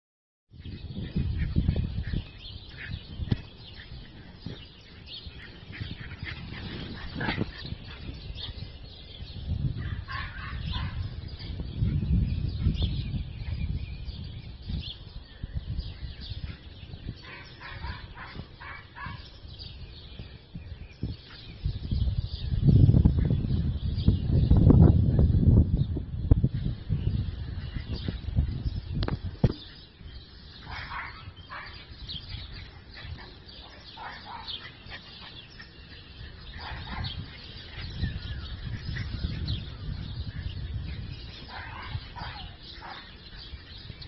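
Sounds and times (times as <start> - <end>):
low microphone rumble: 0.6 - 18.6, 35.0 - 44.0
small dogs yipping and barking: 1.0 - 8.8, 9.8 - 11.9, 16.4 - 19.5, 29.6 - 44.0.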